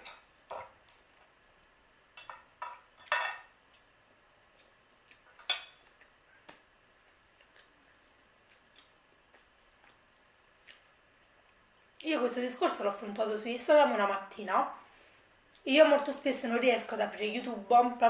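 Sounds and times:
cutlery clinking on a plate: 2.2 - 3.5, 5.4 - 5.9.

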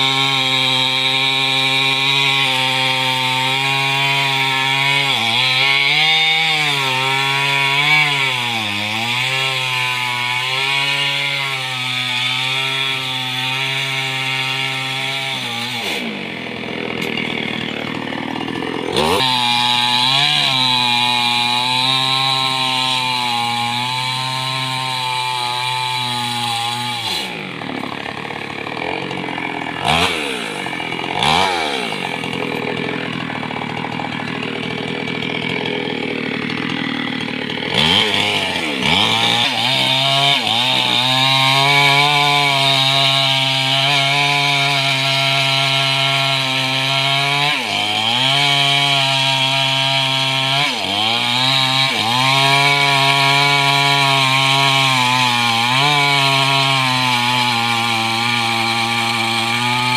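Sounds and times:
chainsaw cutting and revving: 0.0 - 59.9.

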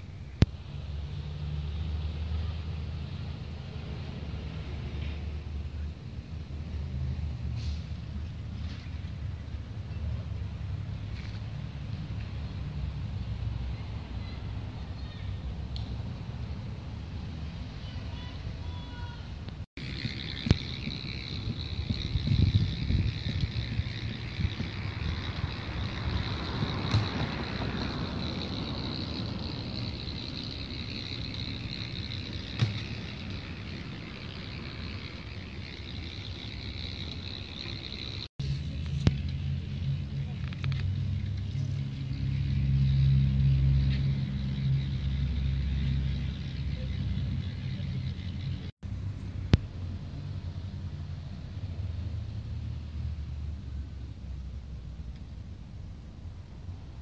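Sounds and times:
motor vehicle passing: 0.0 - 57.0
wind rumble on microphone: 0.0 - 57.0
steady high-pitched hum: 19.5 - 52.0.

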